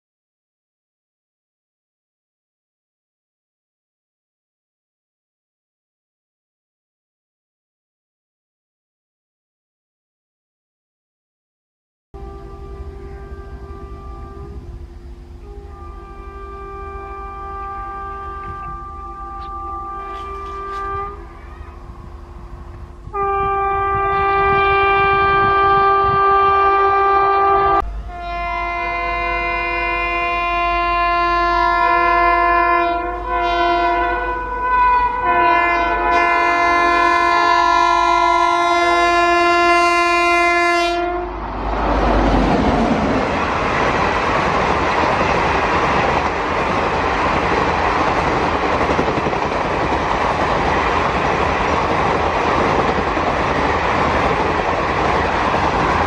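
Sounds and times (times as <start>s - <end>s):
locomotive air horn chords: 12.2s - 42.3s
train passing at speed: 12.2s - 56.0s
wheels rushing on rails: 12.2s - 56.0s.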